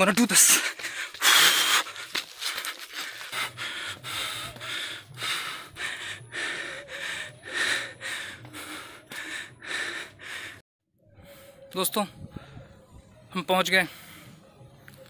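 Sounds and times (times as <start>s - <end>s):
man panting: 0.3s - 10.6s.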